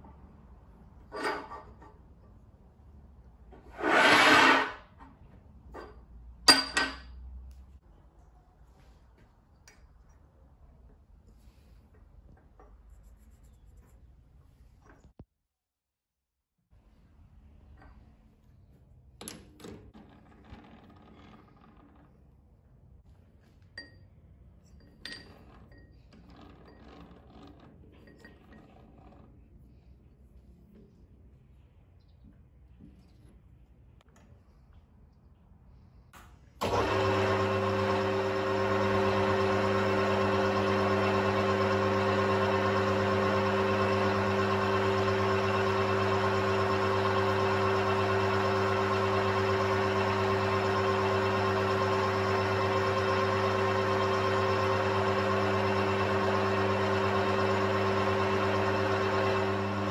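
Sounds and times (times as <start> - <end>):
metal scraping across steel table: 3.6 - 4.9.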